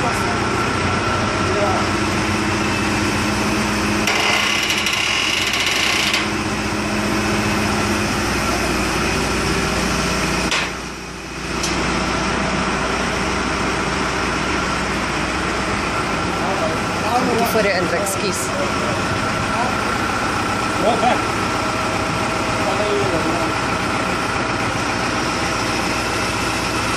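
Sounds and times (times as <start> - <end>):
high-pitched whine: 0.0 - 21.2
diesel engine running: 0.0 - 26.9.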